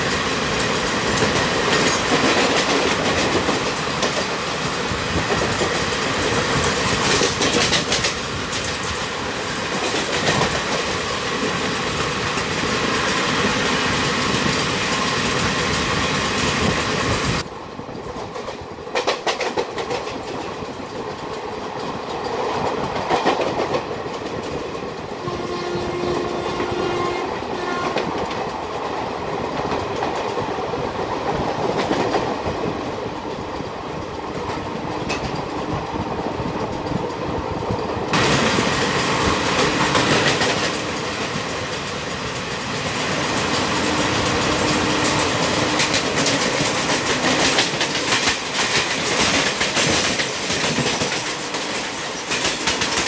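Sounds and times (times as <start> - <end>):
train wheels clattering over rail joints: 0.0 - 25.2, 27.8 - 53.0
faint horn-like tone: 25.2 - 28.0
rush of rolling noise and air: 28.0 - 53.0.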